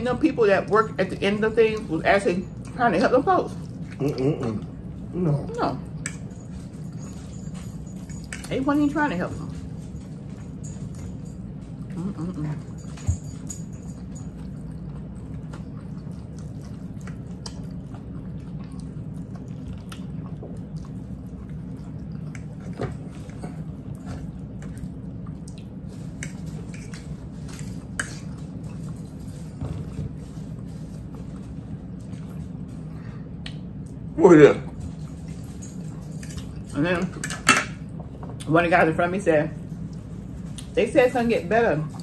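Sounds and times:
steady low hum: 0.0s - 42.0s
chewing clicks and smacks: 14.2s - 29.2s, 33.4s - 34.0s.

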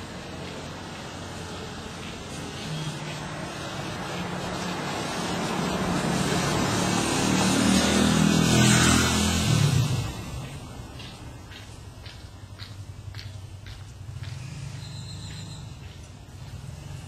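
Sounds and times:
car engine: 0.0s - 12.8s.

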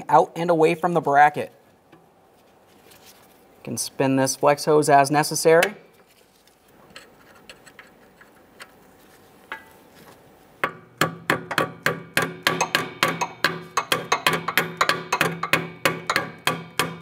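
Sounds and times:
hammer tapping metal clip: 10.6s - 17.0s.

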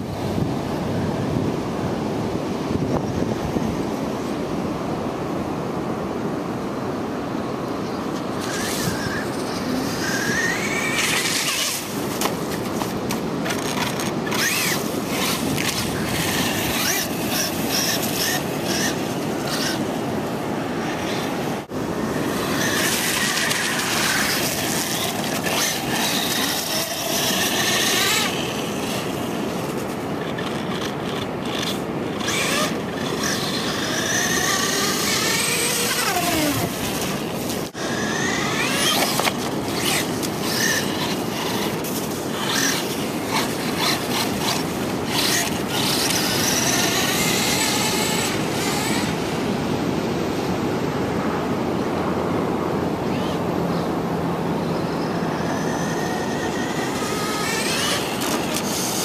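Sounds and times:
wind: 0.0s - 59.0s
electric motor whining: 8.1s - 49.8s, 54.6s - 59.0s.

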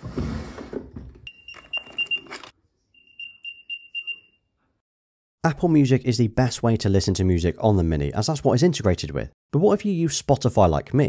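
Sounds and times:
wooden drawer sliding open: 0.0s - 1.2s.

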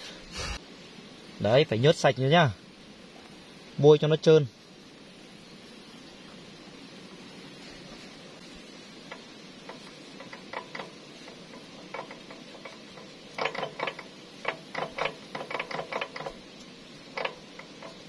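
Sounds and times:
metal cover clicking against metal: 9.1s - 16.5s, 17.1s - 18.0s.

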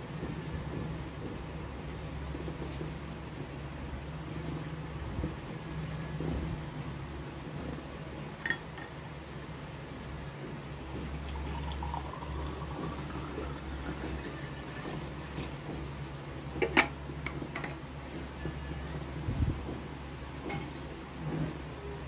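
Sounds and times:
water pouring into a glass: 10.9s - 15.5s.

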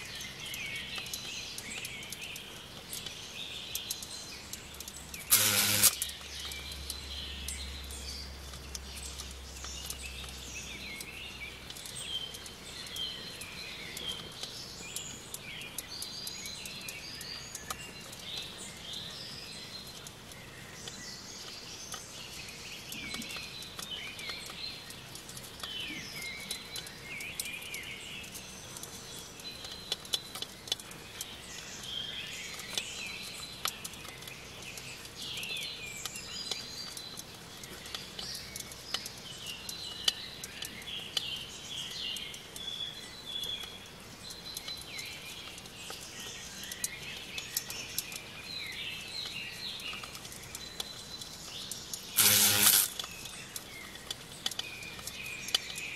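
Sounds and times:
small ticks and scratches: 4.7s - 6.5s, 49.2s - 55.8s.

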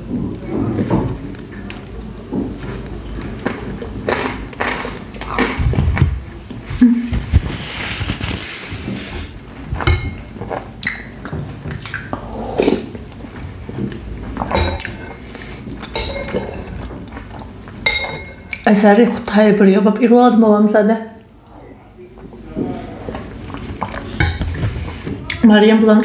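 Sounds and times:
close eating sounds: 0.0s - 20.2s, 21.1s - 26.0s
metal spoon clinking on bowl: 9.8s - 10.3s, 14.5s - 15.2s, 15.8s - 16.9s, 17.8s - 18.6s, 24.2s - 24.6s.

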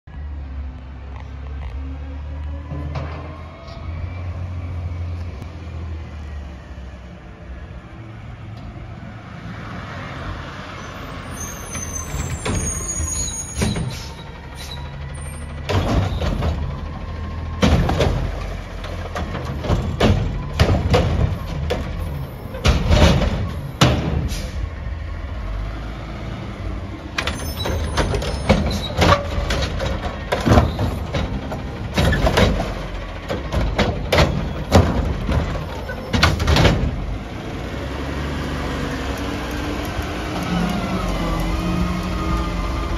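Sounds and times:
high brake squeal: 10.8s - 16.4s, 27.2s - 29.0s
diesel engine running: 11.0s - 42.9s
metallic clanks and bangs: 12.1s - 24.6s, 27.2s - 37.1s.

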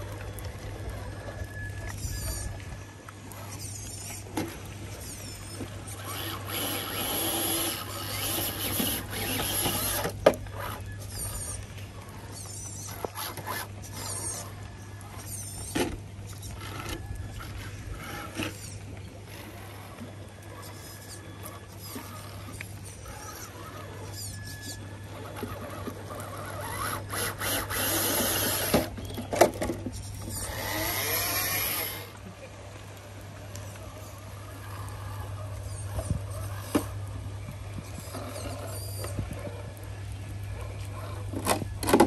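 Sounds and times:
electric motor whirring: 4.9s - 29.1s, 29.9s - 32.2s
high squeaky chirps: 22.8s - 29.2s.

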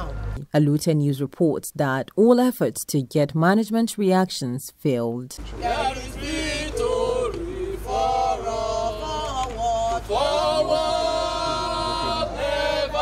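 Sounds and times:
group singing in chorus: 5.4s - 13.0s.

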